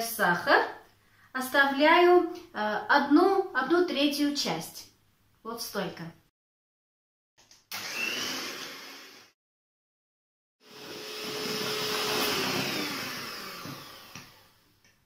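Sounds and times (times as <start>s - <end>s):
electric hand mixer whirring: 7.7s - 9.4s, 10.6s - 14.6s.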